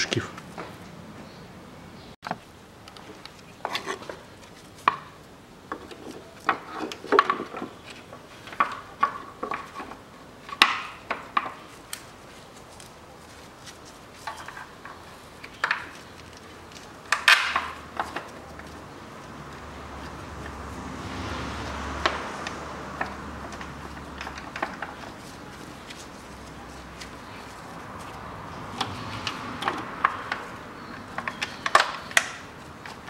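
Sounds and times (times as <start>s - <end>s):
tools and parts clinking: 14.2s - 19.4s, 22.0s - 33.0s.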